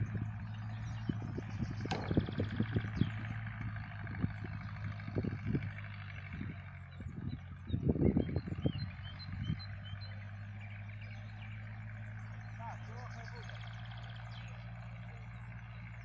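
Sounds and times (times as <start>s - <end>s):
tractor engine running: 0.0s - 16.0s
low thumps: 1.7s - 2.9s.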